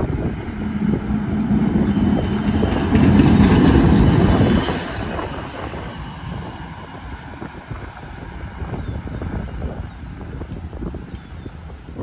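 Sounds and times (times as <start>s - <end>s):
streetcar hum: 0.0s - 12.0s
wheels clicking over rail joints: 2.0s - 5.2s.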